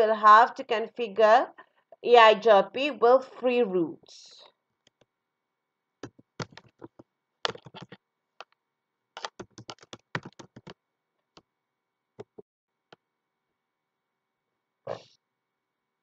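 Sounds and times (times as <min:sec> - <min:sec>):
keyboard typing: 0:06.0 - 0:08.6, 0:09.2 - 0:10.8, 0:12.2 - 0:12.4.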